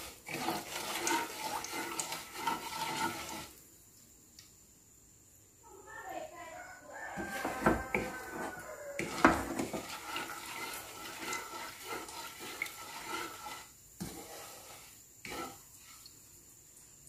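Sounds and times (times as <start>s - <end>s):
spatula scraping a wok: 0.0s - 3.5s, 7.1s - 16.2s
syrup swishing: 0.0s - 3.6s, 9.0s - 16.2s.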